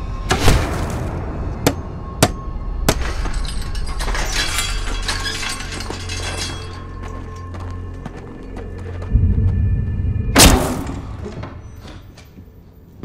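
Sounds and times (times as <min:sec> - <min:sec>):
chain rattling and clinking: 0:03.0 - 0:08.0.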